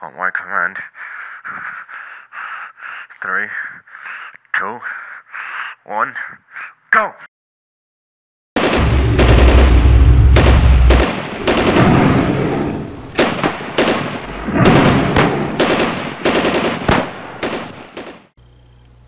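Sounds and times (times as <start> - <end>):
automatic gunfire: 8.6 - 18.3
deep rumble: 8.8 - 13.2, 14.2 - 15.6.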